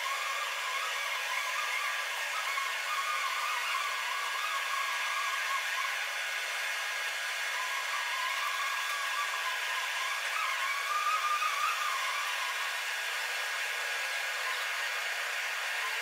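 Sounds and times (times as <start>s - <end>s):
machine whirring hiss with whine: 0.0s - 16.0s.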